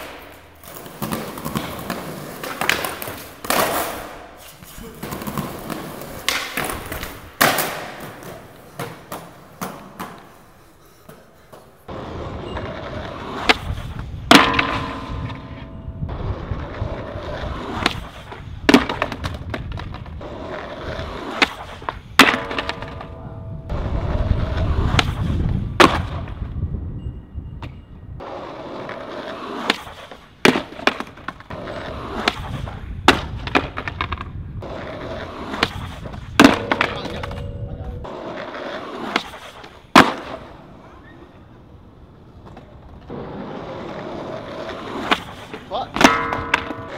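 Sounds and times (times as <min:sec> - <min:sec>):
skateboard pops and impacts: 0:00.0 - 0:04.3, 0:05.0 - 0:10.3, 0:12.9 - 0:15.7, 0:16.4 - 0:26.4, 0:28.6 - 0:37.4, 0:38.0 - 0:40.7, 0:42.4 - 0:46.9
skateboard wheels rolling on concrete: 0:00.0 - 0:46.9
metal handrail ringing: 0:46.0 - 0:46.9.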